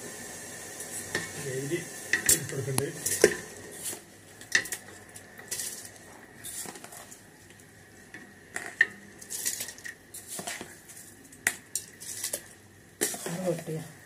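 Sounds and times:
metal pot and utensils clinking: 0:02.1 - 0:03.4.

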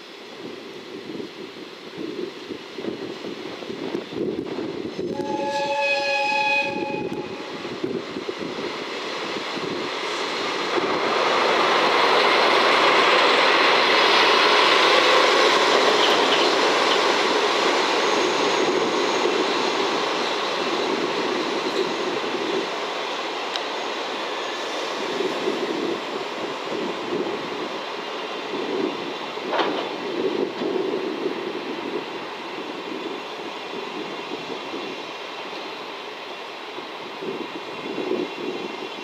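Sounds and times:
train engine noise: 0:00.0 - 0:39.0
locomotive horn blast: 0:05.1 - 0:07.4.

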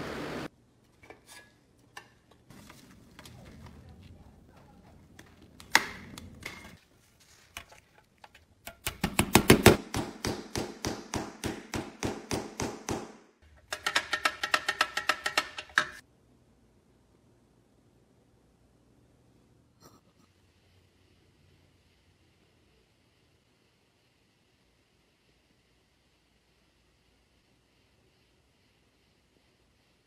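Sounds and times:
handling sounds: 0:02.2 - 0:09.8
hammer tapping metal: 0:08.6 - 0:16.0.

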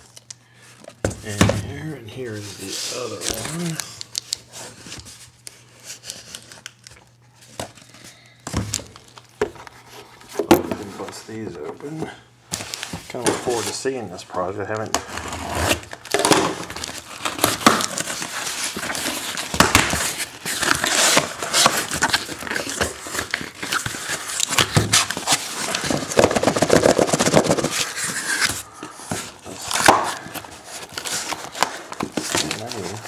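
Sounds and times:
packing tape tearing: 0:14.6 - 0:33.0
cardboard flaps scraping and rustling: 0:15.0 - 0:33.0.

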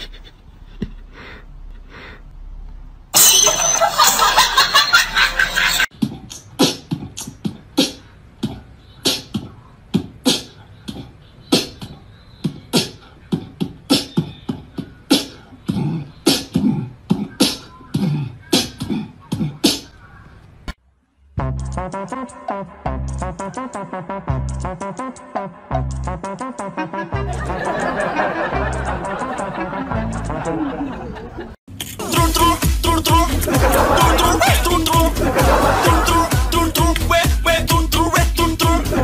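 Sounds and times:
beatboxing clicks and thumps: 0:05.9 - 0:20.0, 0:21.5 - 0:30.7, 0:31.8 - 0:39.0.

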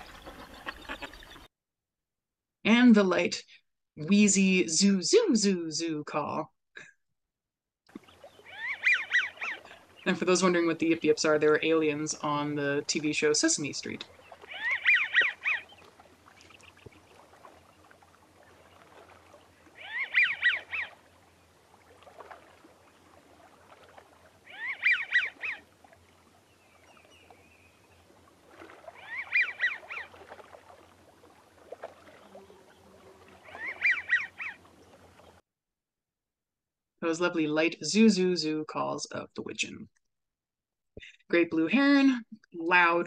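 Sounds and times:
duck wheezy whistled calls: 0:00.0 - 0:01.5, 0:33.4 - 0:34.6.

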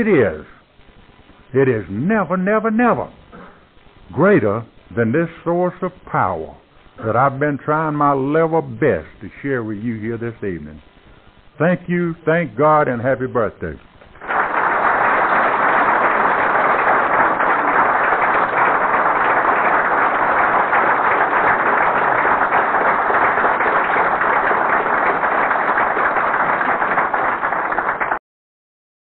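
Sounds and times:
audience applauding: 0:14.1 - 0:28.2.

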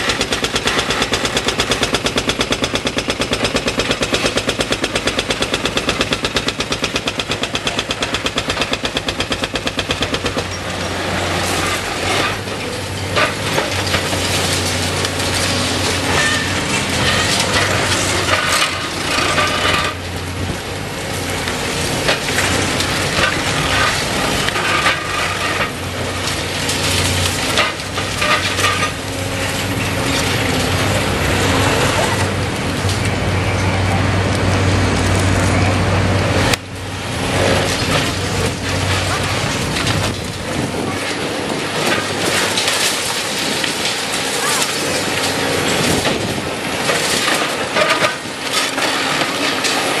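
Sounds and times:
hydraulic breaker hammering concrete: 0:00.0 - 0:14.2, 0:39.0 - 0:50.0
concrete cracking and crunching: 0:00.0 - 0:33.2, 0:36.5 - 0:50.0
excavator diesel engine running: 0:00.0 - 0:50.0.

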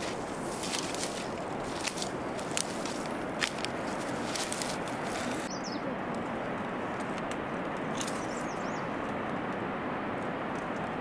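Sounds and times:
small birds chirping: 0:05.2 - 0:06.0, 0:08.0 - 0:09.0.

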